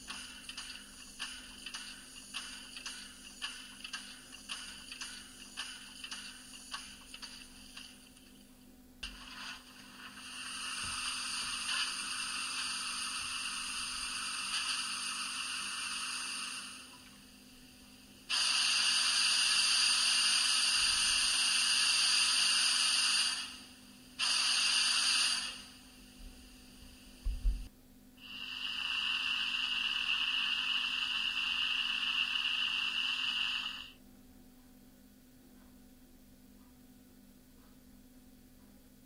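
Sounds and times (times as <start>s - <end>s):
steam hiss from small loudspeaker: 0.0s - 7.9s, 9.0s - 17.1s, 18.2s - 27.6s, 28.2s - 34.0s.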